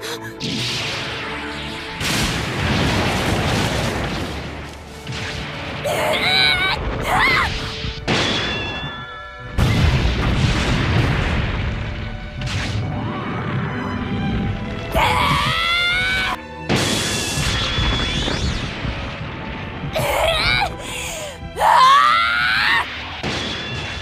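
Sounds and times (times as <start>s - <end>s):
orchestral music: 0.0s - 24.0s
heavy booms and metal crashes: 0.4s - 5.9s, 6.8s - 14.4s, 22.9s - 24.0s.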